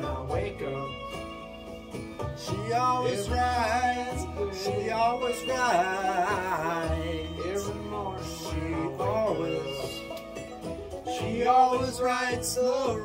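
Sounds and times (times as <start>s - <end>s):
voice singing sliding notes: 2.4s - 10.2s.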